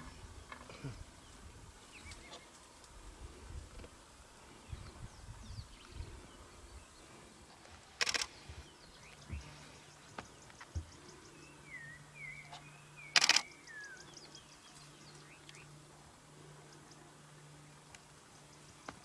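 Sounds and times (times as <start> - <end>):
birds chirping: 0.0 - 2.8, 3.6 - 19.0
faint low hum: 0.0 - 19.0
camera shutter firing rapidly: 8.0 - 8.3, 13.2 - 13.5.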